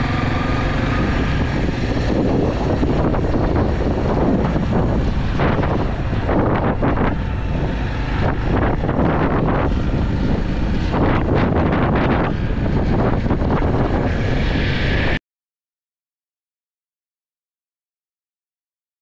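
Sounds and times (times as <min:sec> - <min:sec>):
motorcycle engine and road rumble: 0:00.0 - 0:15.2
wind buffeting microphone: 0:00.0 - 0:15.2.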